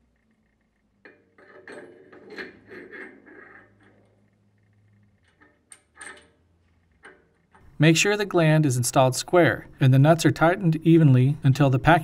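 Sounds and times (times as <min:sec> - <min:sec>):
metal rubbing: 0:00.5 - 0:07.8.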